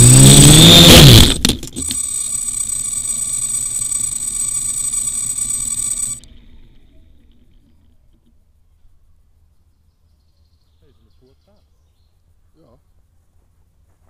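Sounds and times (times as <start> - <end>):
drone propellers buzzing: 0.0 - 6.2
high-pitched electronic whine: 0.0 - 7.0.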